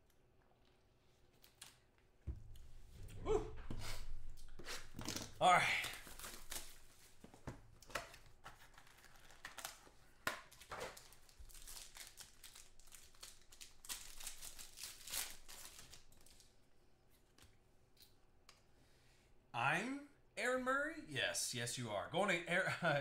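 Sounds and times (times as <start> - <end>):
foil wrapper crinkling and tearing: 5.1 - 7.1, 8.4 - 16.6.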